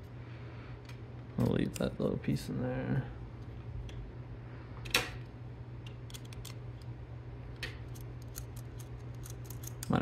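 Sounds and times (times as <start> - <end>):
steady low hum: 0.0 - 10.0
metal brackets and screwdriver clicking: 7.6 - 10.0.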